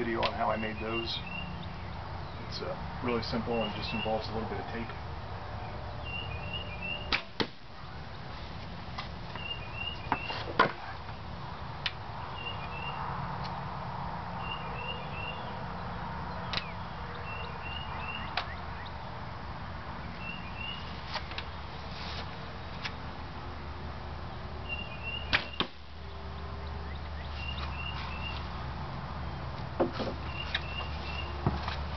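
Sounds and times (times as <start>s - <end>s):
bird chirping: 0.0s - 2.7s, 3.3s - 7.2s, 9.3s - 13.2s, 14.4s - 19.2s, 20.0s - 21.6s, 24.6s - 31.6s.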